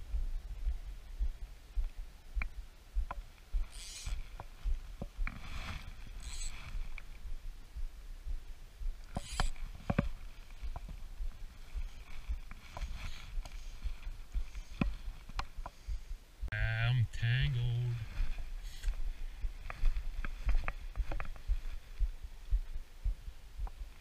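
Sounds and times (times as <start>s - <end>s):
fly line rustling: 3.4s - 7.4s, 9.0s - 16.0s
fishing reel clicks: 3.6s - 4.2s, 6.2s - 6.7s, 9.1s - 9.6s.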